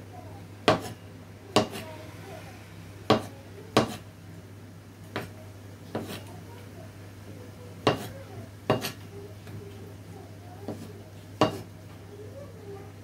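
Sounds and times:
steady low hum: 0.0s - 7.8s
knife chopping on cutting board: 0.6s - 1.0s, 1.6s - 1.8s, 3.1s - 4.0s, 5.1s - 5.3s, 5.9s - 6.2s, 7.8s - 8.1s, 8.7s - 9.0s, 10.7s - 11.7s.

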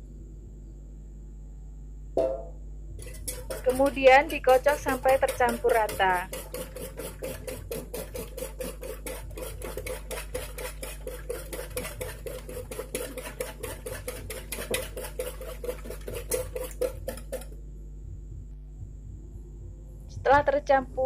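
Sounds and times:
whisk clattering against bowl: 3.0s - 17.6s.

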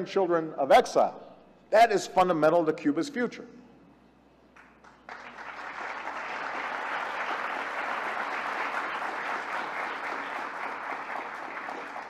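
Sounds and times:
large audience applauding: 4.6s - 12.0s.

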